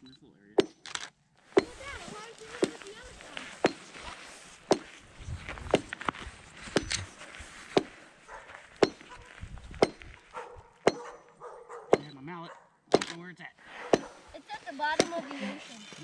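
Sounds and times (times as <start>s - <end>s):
hand tool striking ice: 1.5s - 4.1s, 4.7s - 5.0s, 6.7s - 8.0s, 14.9s - 16.0s.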